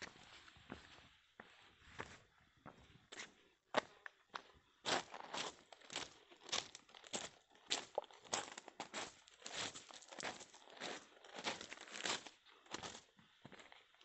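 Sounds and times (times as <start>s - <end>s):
footsteps crunching on gravel: 4.9s - 13.6s.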